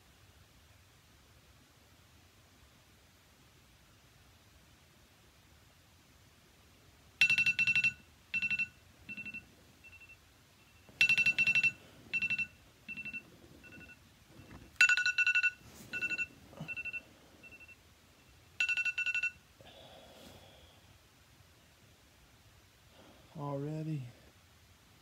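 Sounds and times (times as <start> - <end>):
phone alarm beeping: 7.2 - 19.4
soft rustling: 10.7 - 17.8.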